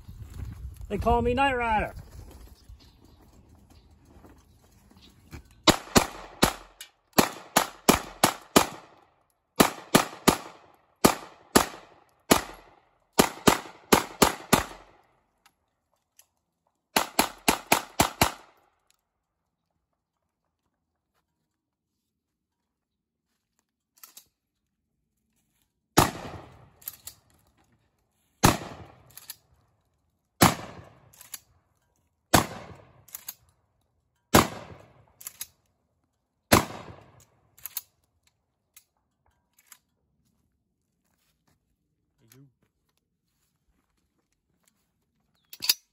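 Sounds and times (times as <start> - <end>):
shotgun single shots: 5.7 - 9.0, 9.6 - 15.0, 26.0 - 26.7, 28.4 - 29.1, 30.4 - 31.0, 32.3 - 33.0, 34.3 - 35.0, 36.5 - 37.2
pistol gunshots in rapid bursts: 5.7 - 15.0, 17.0 - 18.6, 26.0 - 26.7, 28.4 - 29.0, 30.4 - 31.1, 32.3 - 33.1, 34.3 - 35.1, 36.5 - 37.2.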